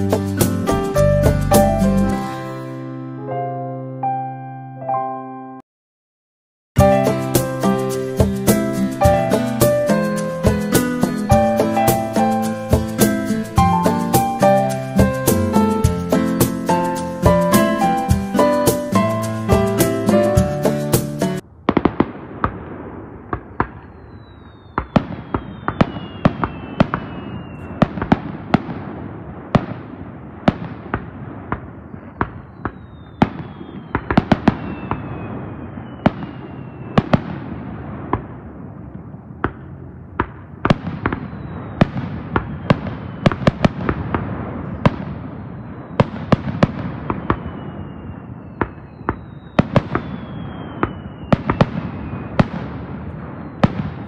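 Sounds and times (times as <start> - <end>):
falling firework whistles: 23.4 - 28.5, 31.8 - 37.6, 40.9 - 44.0, 44.8 - 54.0
continuous rumble: 38.0 - 42.6.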